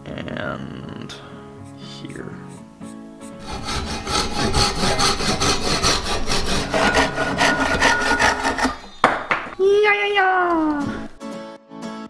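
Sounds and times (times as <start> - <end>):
hand saw cutting plywood: 3.3 - 9.1.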